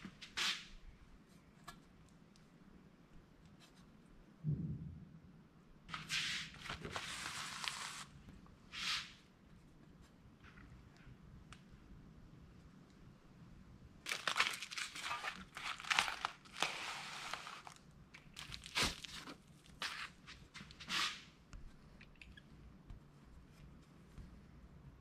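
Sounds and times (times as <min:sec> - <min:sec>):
plastic packaging crinkling: 0:06.6 - 0:08.1, 0:14.1 - 0:20.2.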